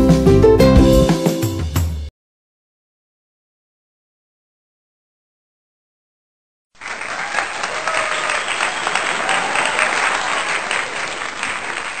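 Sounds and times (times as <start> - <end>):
crowd applauding: 6.8 - 12.0.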